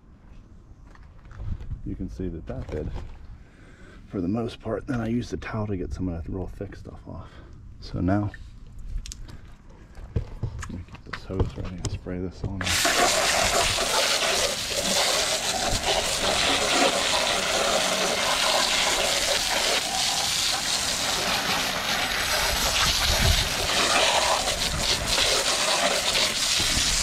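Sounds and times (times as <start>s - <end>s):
hose spraying water with splashing: 12.6s - 27.0s.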